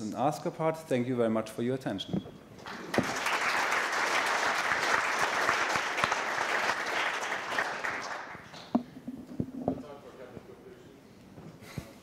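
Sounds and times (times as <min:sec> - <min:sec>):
audience applauding: 0:02.6 - 0:08.7.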